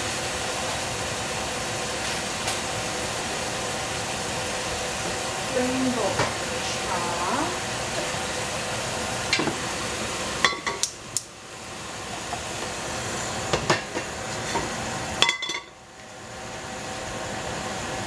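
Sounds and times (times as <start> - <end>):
metal pot lid clinking: 15.2 - 15.7.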